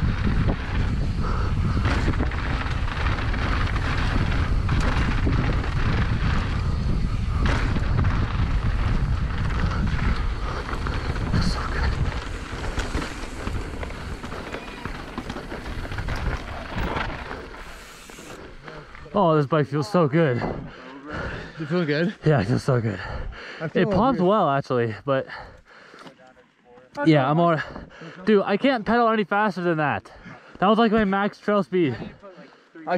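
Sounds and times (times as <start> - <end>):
wind buffeting microphone: 0.0 - 19.0
bike clattering over bumps: 0.0 - 19.1
bike tyres on dirt: 0.0 - 23.3.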